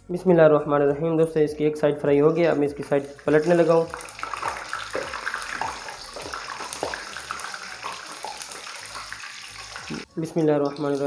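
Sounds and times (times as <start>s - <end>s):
deep-frying sizzle and pops: 3.0s - 11.0s.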